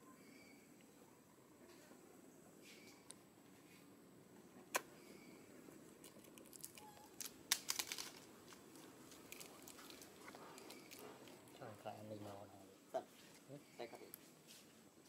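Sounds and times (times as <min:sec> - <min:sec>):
faint crinkling: 0:05.6 - 0:15.0.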